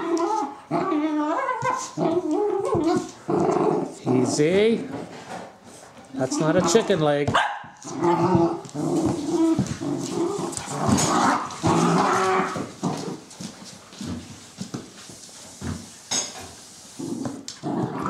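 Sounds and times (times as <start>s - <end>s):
puppies growling: 0.0s - 4.9s, 6.2s - 7.0s, 7.8s - 14.3s, 17.0s - 18.0s.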